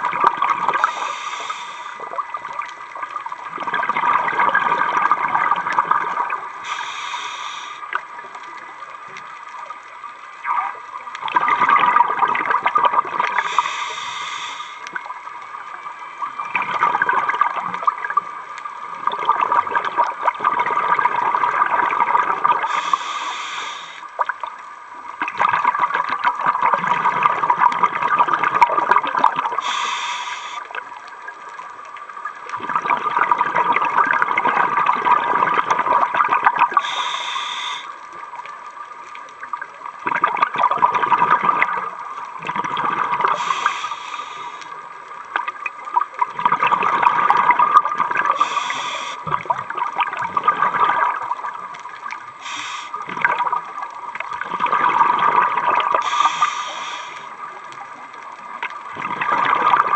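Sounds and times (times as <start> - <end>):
regulator breath hiss: 0.8 - 2.1, 6.6 - 8.0, 13.4 - 15.0, 22.7 - 24.1, 29.6 - 30.7, 36.8 - 38.0, 43.3 - 44.8, 48.3 - 49.2, 52.4 - 53.1, 56.0 - 57.4
exhaust bubbling underwater: 3.5 - 6.7, 10.4 - 13.8, 19.0 - 22.9, 25.2 - 29.7, 32.5 - 37.1, 40.0 - 44.6, 45.3 - 57.6, 58.8 - 59.9.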